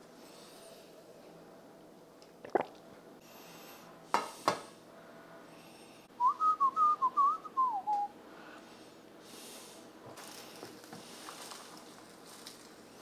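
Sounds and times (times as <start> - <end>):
person whistling a tune: 6.2 - 8.1.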